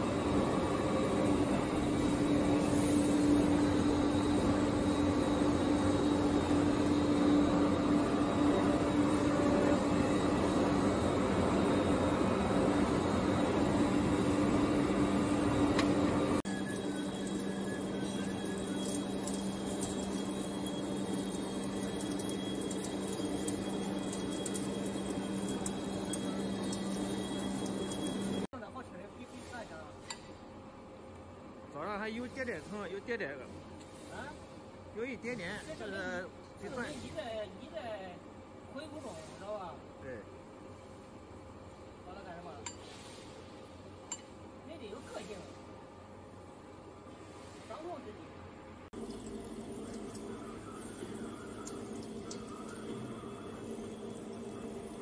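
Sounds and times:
lathe machine drone: 0.0s - 28.5s, 49.0s - 55.0s.

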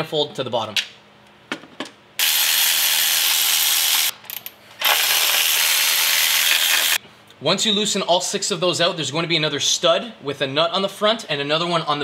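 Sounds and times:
electric ratchet running: 2.2s - 7.0s.

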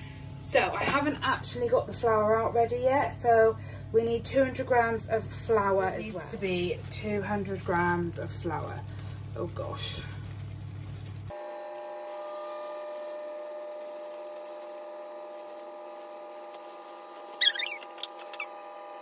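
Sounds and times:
plastic bag crinkling: 5.4s - 18.5s.

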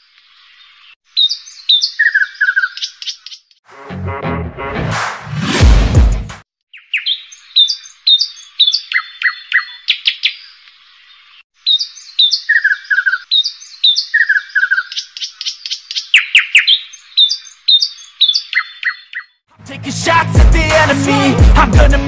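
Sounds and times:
bird chirping: 0.3s - 3.6s, 6.7s - 19.4s.

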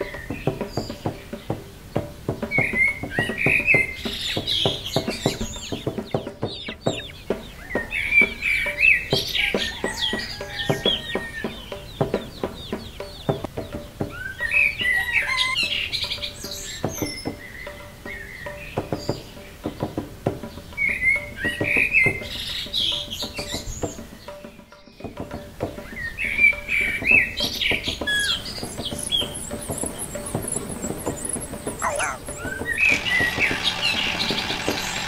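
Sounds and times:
quiet background music: 0.0s - 35.0s
small birds chirping: 0.0s - 35.0s
chickens clucking: 2.4s - 13.8s, 14.4s - 16.3s, 28.1s - 35.0s.

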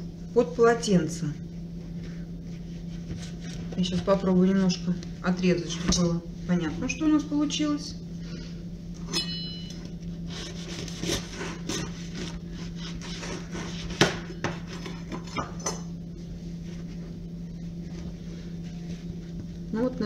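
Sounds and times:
steady low hum: 0.0s - 20.0s
knife sawing through bread crust: 10.3s - 15.0s.

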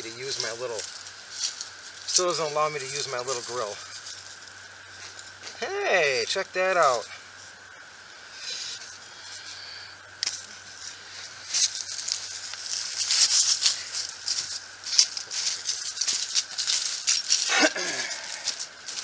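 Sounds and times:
rustling in dry leaf litter: 0.0s - 19.0s
rattling clicks of handled gear: 11.5s - 19.0s.

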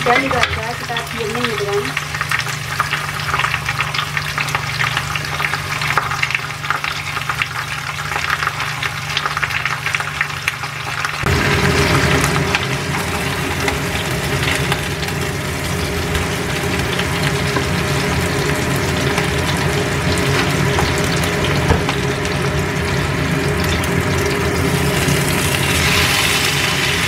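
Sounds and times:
fish sizzling in a pan: 0.0s - 27.0s
low steady hum: 0.0s - 27.0s.

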